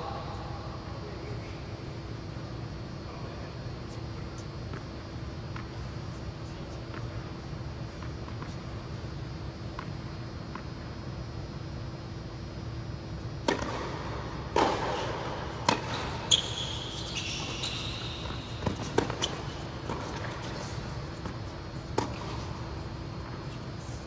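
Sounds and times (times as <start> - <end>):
tennis balls struck and bouncing: 13.4 - 23.3
shoe squeak on court: 15.7 - 20.9.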